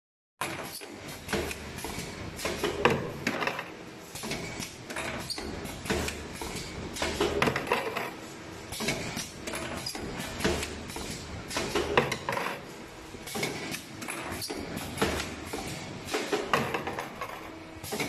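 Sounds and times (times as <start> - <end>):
pneumatic clamps clacking: 0.4 - 3.6, 4.2 - 8.1, 8.7 - 12.6, 13.2 - 18.0
wire feeding through rollers: 0.4 - 18.0.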